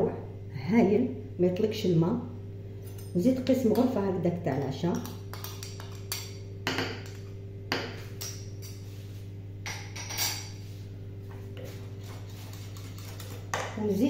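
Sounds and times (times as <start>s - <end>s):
steady low hum: 0.0s - 14.0s
metal spoon scraping a plate: 12.0s - 13.5s.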